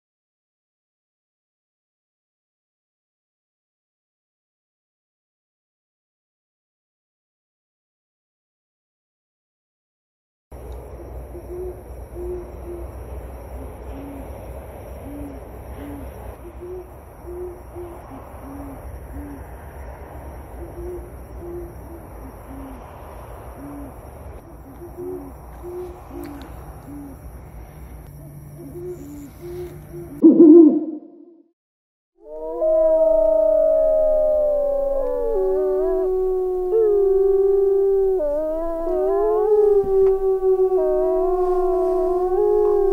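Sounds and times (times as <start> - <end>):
background hiss and hum: 10.6 - 30.3
owl hooting: 10.9 - 13.0, 13.6 - 19.5, 20.5 - 22.8, 23.5 - 31.2
wolves howling: 32.2 - 42.9.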